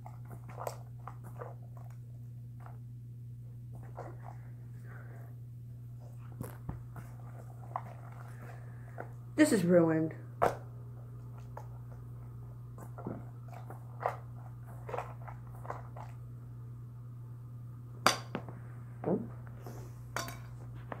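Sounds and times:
slime squelching in a metal bowl: 0.0 - 2.8, 12.8 - 16.3
steady low hum: 0.0 - 21.0.

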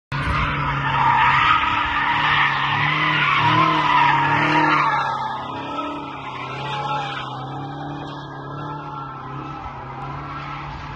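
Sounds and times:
car engine under load: 0.2 - 10.9
tyre squeal: 0.2 - 10.9.

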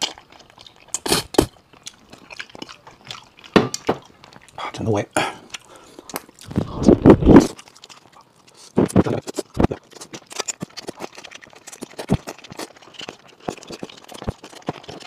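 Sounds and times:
wet mouth clicks and smacks: 7.4 - 15.0.

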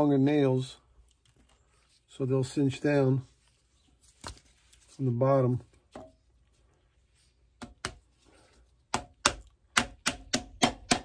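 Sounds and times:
hammer driving nails: 8.9 - 11.0.

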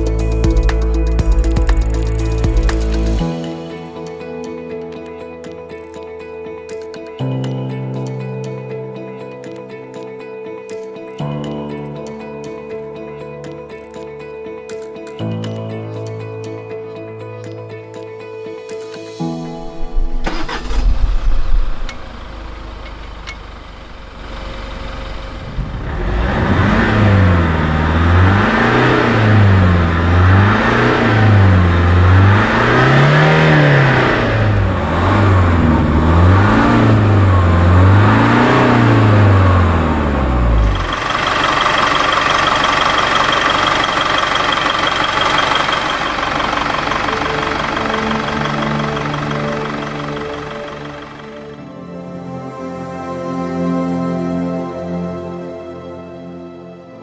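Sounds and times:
diesel engine idling and revving: 0.0 - 3.2, 20.2 - 51.7
music: 0.0 - 23.4, 26.5 - 41.0, 42.1 - 57.0
steady whir: 20.3 - 51.5.

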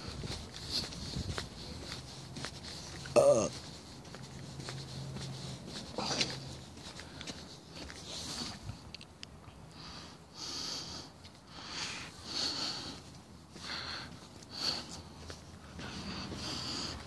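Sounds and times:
person breathing close to microphone: 9.7 - 17.0.

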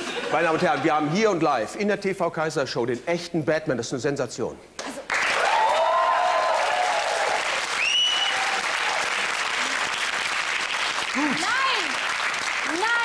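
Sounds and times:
audience applause: 5.1 - 13.0.

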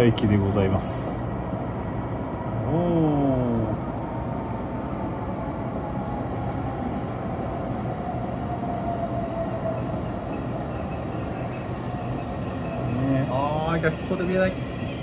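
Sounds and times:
train running rumble and hiss: 0.0 - 15.0
train braking whine: 5.7 - 15.0.

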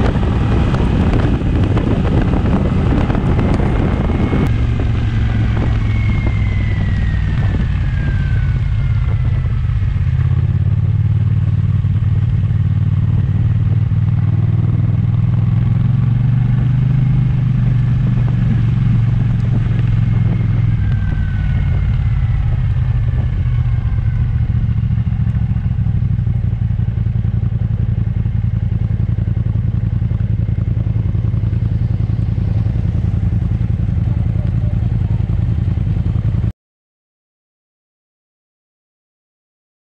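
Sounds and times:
thin falling whine: 0.0 - 10.6
scooter engine droning: 0.0 - 36.5
tyre and wind noise on wet road: 0.0 - 36.5.

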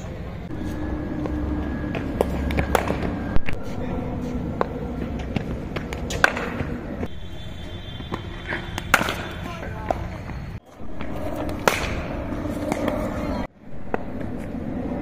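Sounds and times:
cricket bat striking ball: 8.0 - 10.4, 11.5 - 13.1.

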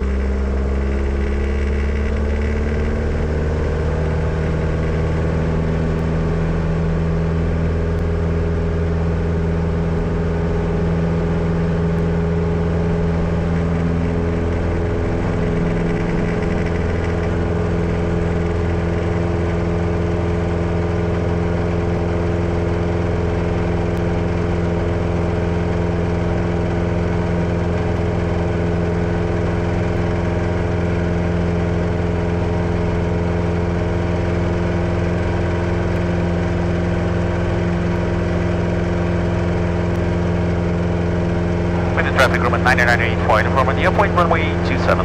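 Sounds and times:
airplane piston engine running: 0.0 - 5.3, 12.2 - 20.2, 26.3 - 45.0.

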